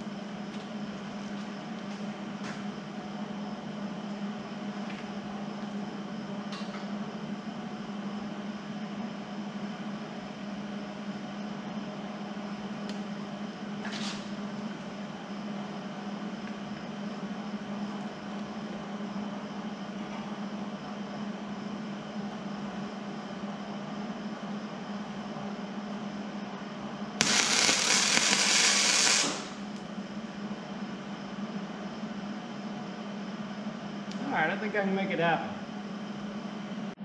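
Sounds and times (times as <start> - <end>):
machine hum: 27.2 - 30.5.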